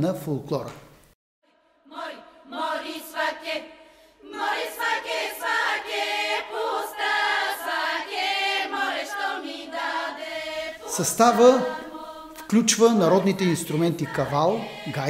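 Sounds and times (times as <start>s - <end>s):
women's choir singing: 1.5s - 15.0s.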